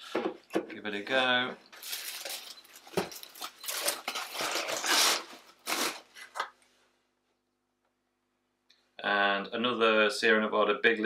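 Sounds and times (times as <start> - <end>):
paper packing rustling: 1.7 - 6.5.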